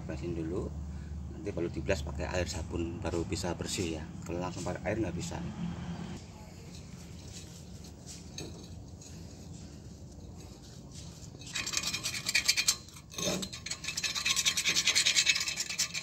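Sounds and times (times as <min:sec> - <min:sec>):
scratchy scrubbing on metal: 0:06.9 - 0:16.0.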